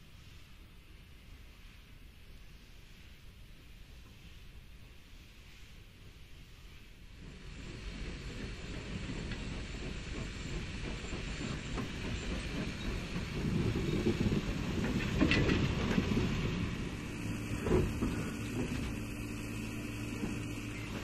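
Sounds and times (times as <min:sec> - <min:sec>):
steam escaping from locomotive: 0:00.0 - 0:21.0
wagon wheels clattering over rail joints: 0:10.2 - 0:16.9.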